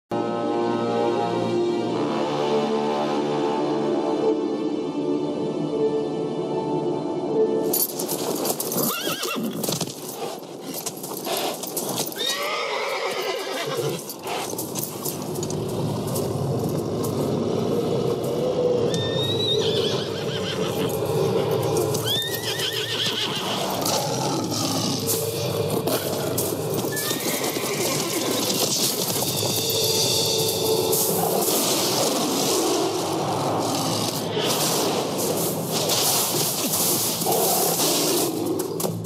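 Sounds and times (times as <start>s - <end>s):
hooves stamping in snow: 7.7s - 39.0s
horse neighing: 8.8s - 9.8s, 11.9s - 14.5s, 18.9s - 32.4s.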